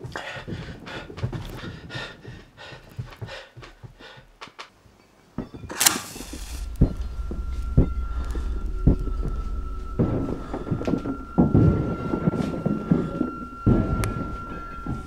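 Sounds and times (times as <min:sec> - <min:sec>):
heavy panting breaths: 0:00.0 - 0:04.6
deep thuds: 0:05.5 - 0:15.0
harsh hiss of flame struck: 0:05.7 - 0:14.4
low drone: 0:05.7 - 0:15.0.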